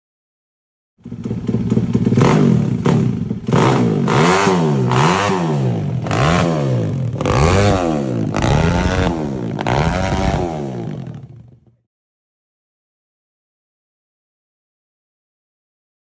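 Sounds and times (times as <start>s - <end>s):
engine revving: 1.0s - 11.8s.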